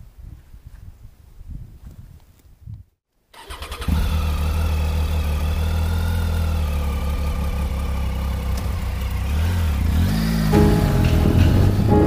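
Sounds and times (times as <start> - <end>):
motorcycle engine starting and idling: 3.4 - 12.0.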